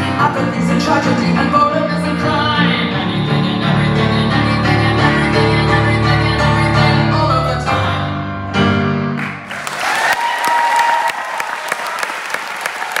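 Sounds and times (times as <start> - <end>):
grand piano chords: 0.0 - 9.7
audience applause and cheering: 9.2 - 13.0
close hand claps: 9.2 - 13.0.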